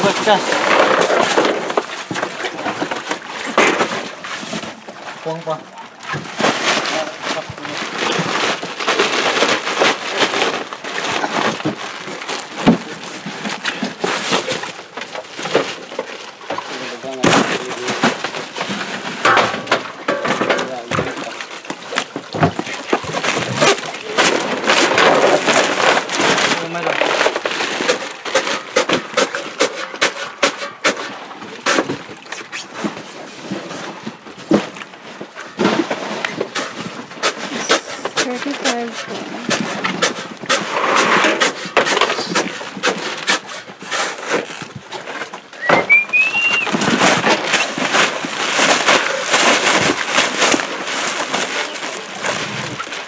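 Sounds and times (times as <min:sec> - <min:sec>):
crinkling plastic bags: 0:00.0 - 0:53.0
plastic crates knocking and clattering: 0:00.0 - 0:53.0
crates knocking: 0:17.1 - 0:21.4.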